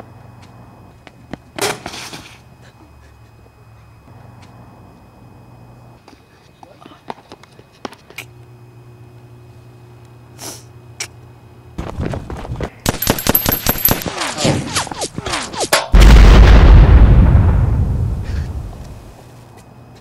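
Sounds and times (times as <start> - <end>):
rapid gunfire: 12.9 - 15.2
loud explosion: 15.9 - 18.8.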